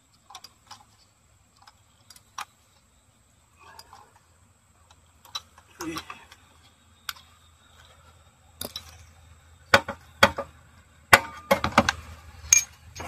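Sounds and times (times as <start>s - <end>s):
knocks and clinks of tools: 8.6s - 10.5s, 11.2s - 13.0s.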